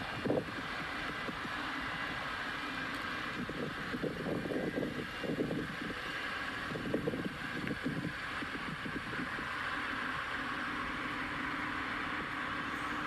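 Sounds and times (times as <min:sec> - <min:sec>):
wind buffeting microphone: 0:00.0 - 0:02.3, 0:03.2 - 0:09.6
steady hiss: 0:00.0 - 0:13.0
steady low hum: 0:00.0 - 0:13.0.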